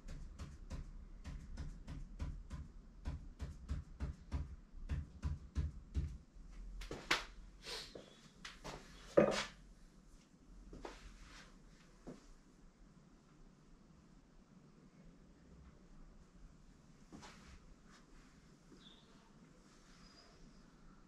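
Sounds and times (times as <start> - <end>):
pen tapping on paper: 0.0 - 6.2.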